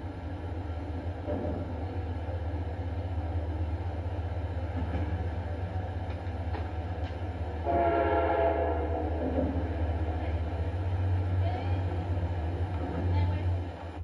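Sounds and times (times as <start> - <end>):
train passing rumble: 0.0 - 14.0
locomotive horn blast: 7.6 - 9.2.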